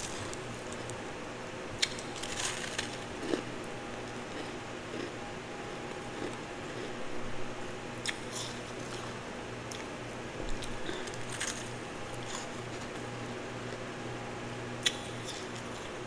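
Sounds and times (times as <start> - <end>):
faint steady hum: 0.0 - 16.0
chewing crunchy ice: 1.8 - 5.2, 6.0 - 7.0, 10.5 - 13.1.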